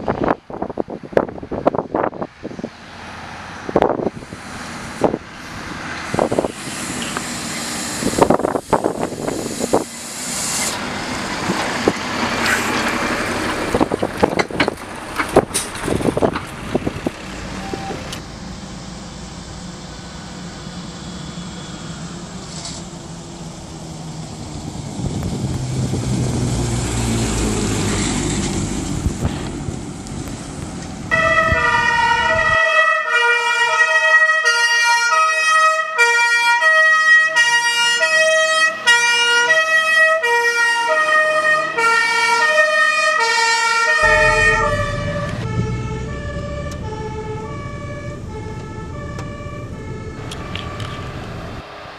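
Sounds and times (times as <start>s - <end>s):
truck engine rumble: 0.0s - 33.7s, 37.4s - 51.9s
road noise: 0.0s - 51.9s
two-tone fire engine siren: 31.1s - 51.6s.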